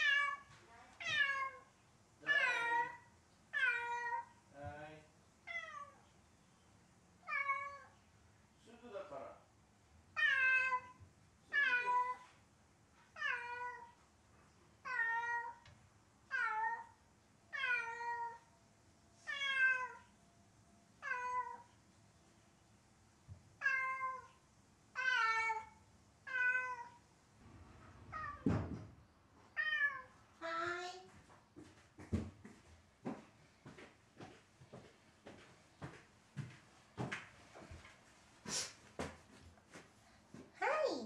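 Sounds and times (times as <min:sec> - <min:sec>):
cat meowing loudly: 0:00.0 - 0:04.4, 0:05.4 - 0:06.0, 0:07.2 - 0:08.0, 0:10.2 - 0:12.3, 0:13.1 - 0:14.0, 0:14.8 - 0:15.6, 0:16.3 - 0:18.5, 0:19.2 - 0:20.1, 0:21.0 - 0:21.7, 0:23.6 - 0:27.0, 0:28.1 - 0:28.5, 0:29.5 - 0:30.2
dull thump: 0:28.4 - 0:28.9.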